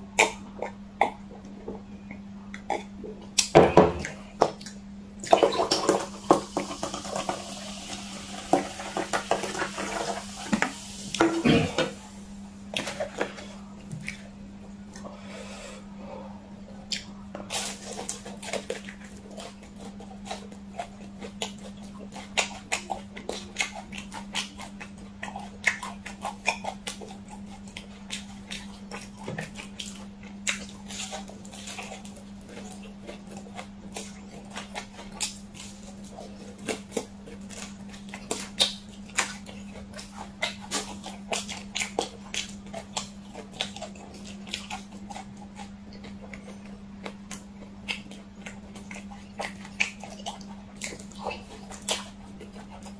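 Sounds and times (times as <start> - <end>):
chewing fried chicken: 0.0 - 52.9.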